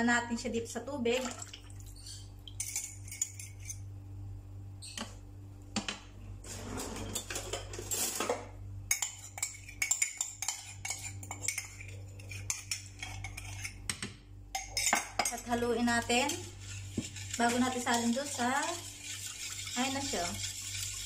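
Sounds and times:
whisk clinking against bowl: 0:08.9 - 0:13.9, 0:14.5 - 0:21.0.

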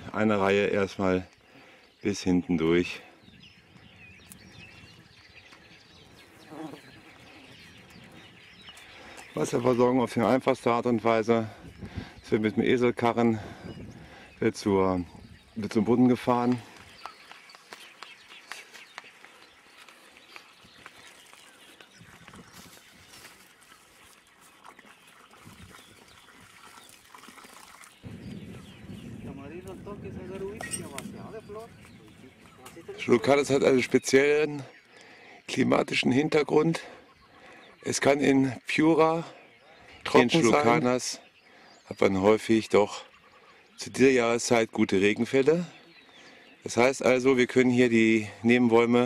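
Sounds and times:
faint field ambience: 0:00.0 - 0:49.0
water trickling from hose: 0:18.6 - 0:28.1.

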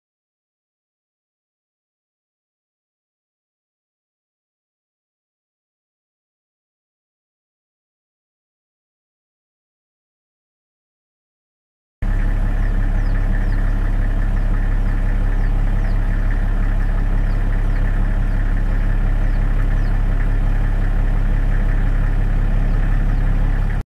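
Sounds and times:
engine idling: 0:12.0 - 0:23.8.

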